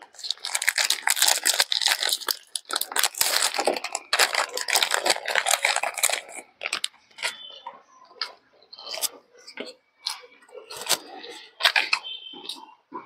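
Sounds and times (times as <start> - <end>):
plastic wrapper crinkling: 0.0 - 7.5, 10.1 - 12.1.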